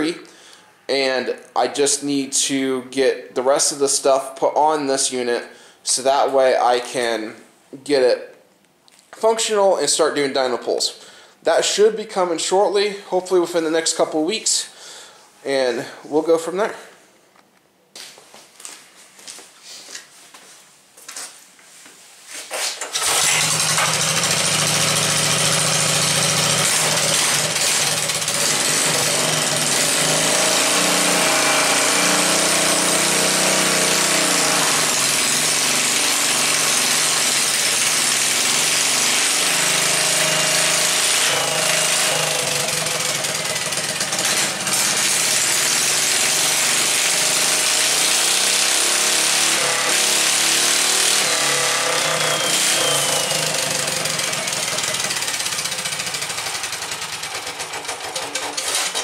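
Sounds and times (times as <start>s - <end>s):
small engine running: 22.9s - 59.0s.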